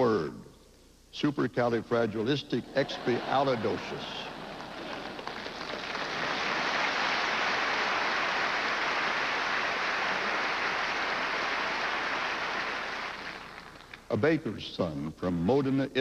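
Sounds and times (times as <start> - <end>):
audience applauding: 2.8 - 14.0.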